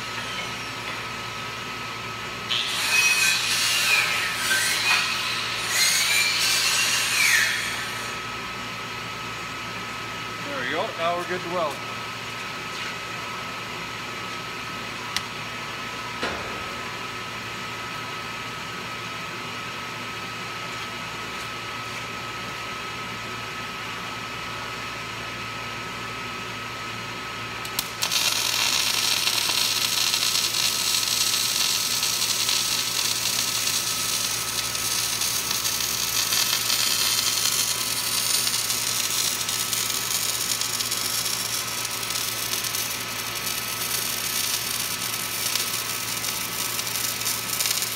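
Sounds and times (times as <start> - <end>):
welding arc crackling hiss: 2.5 - 8.3, 27.6 - 47.9
steady hum: 8.0 - 23.3.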